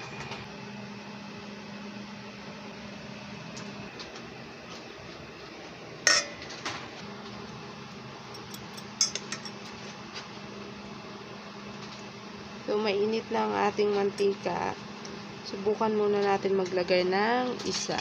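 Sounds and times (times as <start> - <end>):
metal spoon clinking against bowl: 8.4 - 9.7.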